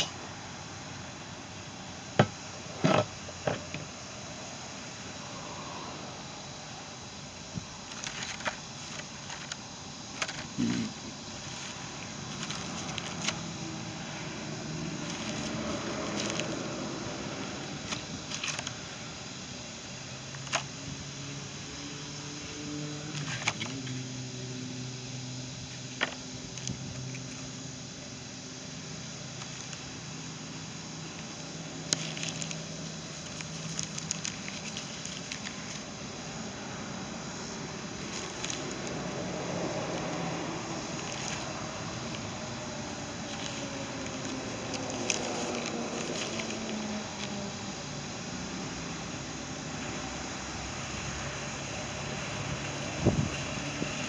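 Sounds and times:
background hum: 0:00.0 - 0:54.0
plastic blister packs crinkling: 0:07.8 - 0:13.5, 0:15.0 - 0:16.6, 0:17.6 - 0:18.8, 0:31.1 - 0:36.0, 0:38.0 - 0:39.2, 0:40.8 - 0:47.5.

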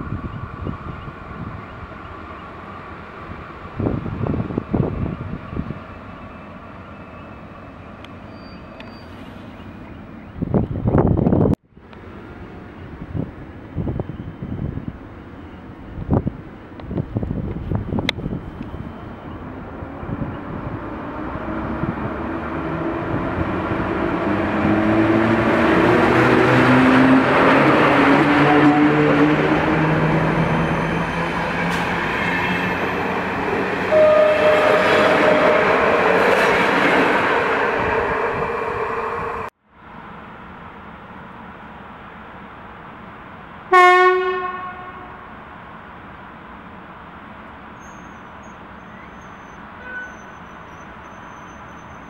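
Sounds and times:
wind buffeting microphone: 0:00.0 - 0:02.0, 0:03.2 - 0:05.9, 0:10.3 - 0:11.6, 0:12.7 - 0:30.2, 0:32.8 - 0:39.5
electric locomotive humming: 0:00.0 - 0:52.0
wheels rumbling on rails: 0:00.0 - 0:52.0.

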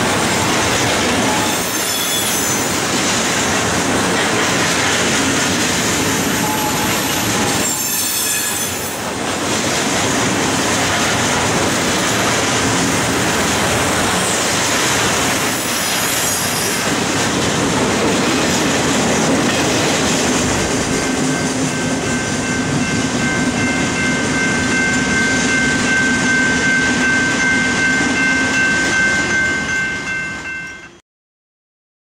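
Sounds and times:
train wheels rumbling and clattering: 0:00.0 - 0:30.5
high-pitched wheel squeal: 0:01.3 - 0:02.8, 0:06.2 - 0:09.0.

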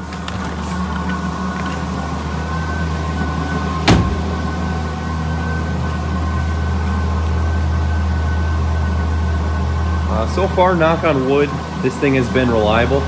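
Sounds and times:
car engine idling: 0:00.0 - 0:13.0
car door shutting: 0:03.8 - 0:04.5.

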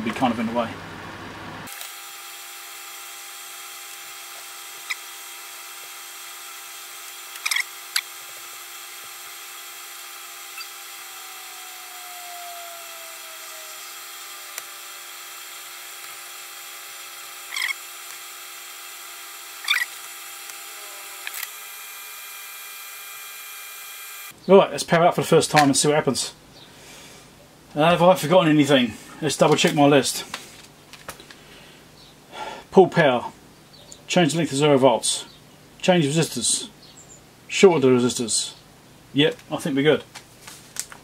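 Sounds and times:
extractor fan humming: 0:00.0 - 0:24.5.

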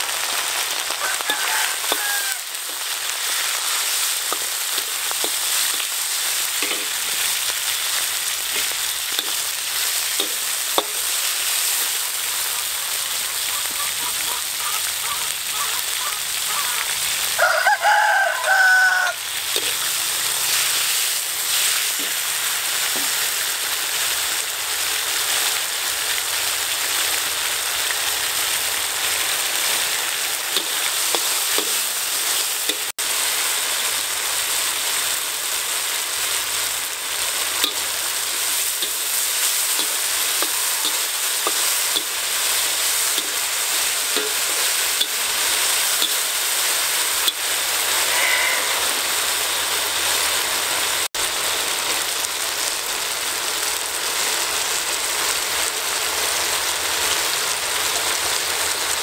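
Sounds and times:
meat sizzling in a wok: 0:00.0 - 0:59.0
metal spatula scraping pan: 0:06.6 - 0:07.4, 0:19.5 - 0:22.2, 0:37.6 - 0:43.5, 0:47.2 - 0:49.5.

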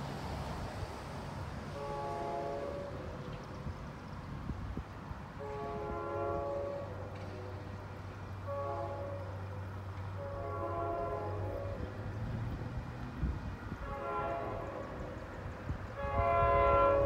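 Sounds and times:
distant train horn: 0:01.7 - 0:03.4, 0:05.3 - 0:12.6, 0:13.7 - 0:17.0.

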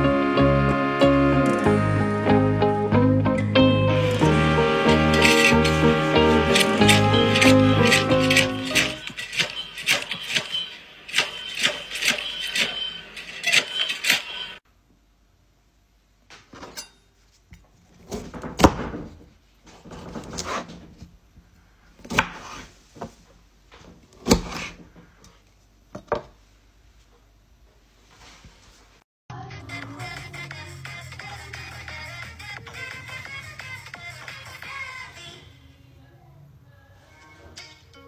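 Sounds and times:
music with clicking beat: 0:03.3 - 0:09.0
knife cutting on wooden board: 0:05.1 - 0:14.3.

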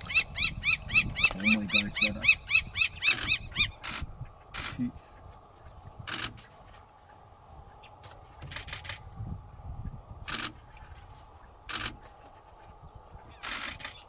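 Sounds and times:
camera shutters clicking: 0:11.7 - 0:12.0.

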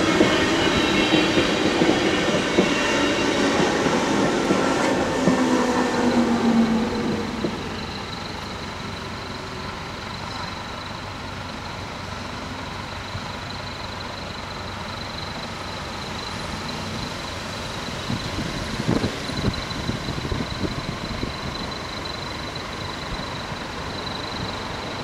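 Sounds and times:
level crossing warning bells: 0:00.0 - 0:25.0
road vehicles idling: 0:05.2 - 0:25.0.

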